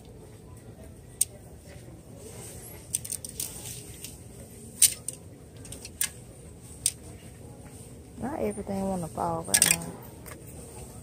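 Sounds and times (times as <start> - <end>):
hangers clicking on clothing rack: 4.8 - 6.2, 9.4 - 10.0.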